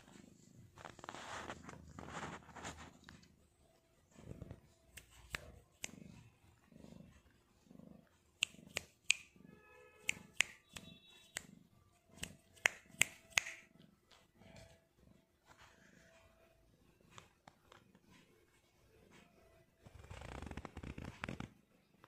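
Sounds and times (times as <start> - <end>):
cat purring: 0.0 - 22.0.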